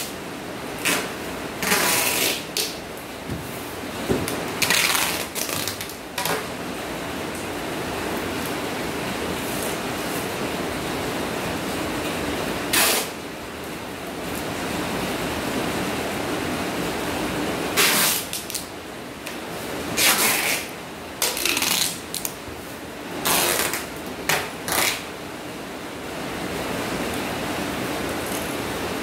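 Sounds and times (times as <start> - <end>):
packing tape ripping off roll: 0.8 - 2.8, 4.3 - 6.4, 12.7 - 13.2, 17.8 - 18.7, 20.0 - 22.4, 23.2 - 25.1.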